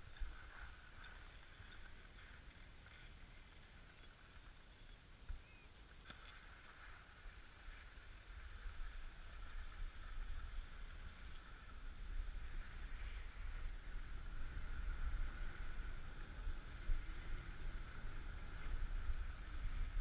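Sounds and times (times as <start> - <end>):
skis sliding on snow: 0.0 - 4.7, 6.0 - 20.0
wind on microphone: 8.5 - 20.0.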